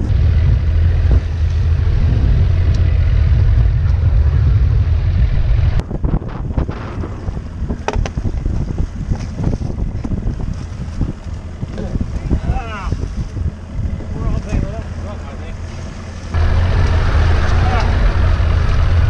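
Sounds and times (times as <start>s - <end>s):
wind buffeting microphone: 0.0s - 19.0s
water splashing against hull: 5.8s - 19.0s.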